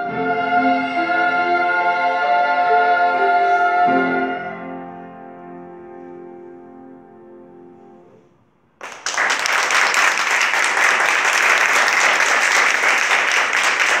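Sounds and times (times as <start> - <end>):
audience applause: 8.8 - 14.0.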